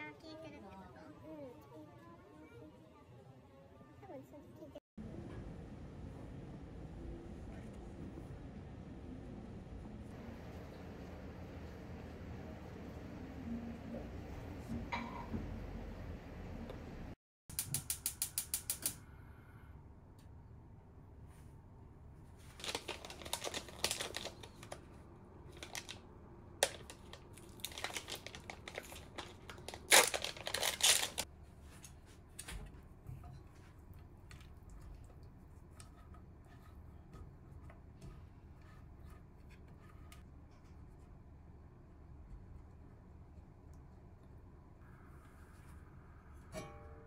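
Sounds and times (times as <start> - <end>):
plastic tray crinkling: 22.6 - 24.8, 25.6 - 26.0, 26.6 - 31.2.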